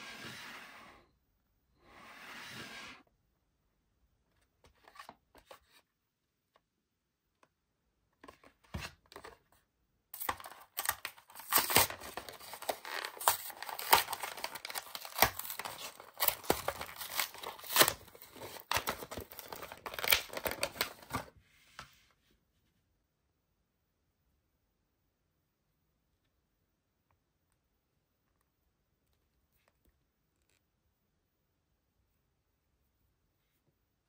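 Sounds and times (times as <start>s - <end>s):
plastic blister pack tearing: 10.2s - 21.2s.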